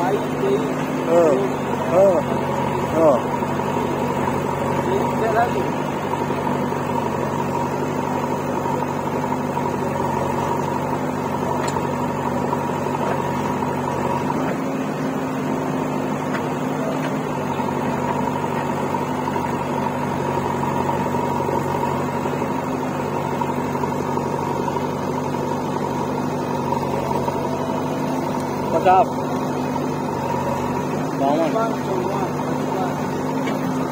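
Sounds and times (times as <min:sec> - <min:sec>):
diesel engines droning: 0:00.0 - 0:33.9.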